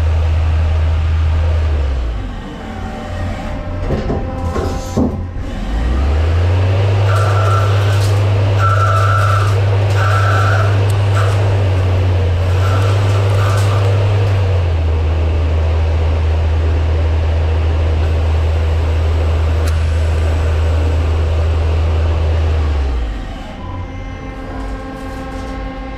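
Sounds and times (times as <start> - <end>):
lathe humming: 5.2 - 22.6.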